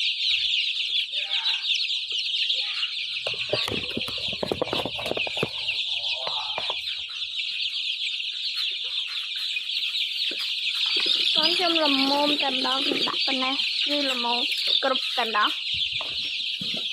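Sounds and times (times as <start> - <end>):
chicks peeping: 0.0 - 16.9
knocking and rustling: 3.3 - 6.8.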